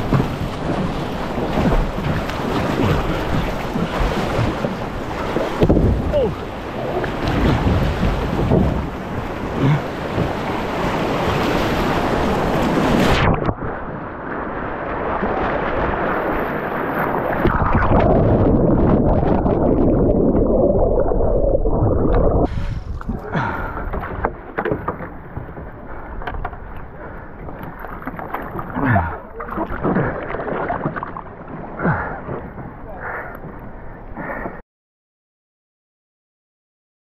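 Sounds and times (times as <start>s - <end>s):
rushing river water: 0.0s - 19.6s
wind buffeting microphone: 0.0s - 24.2s
water splashing from canoe: 0.0s - 34.6s.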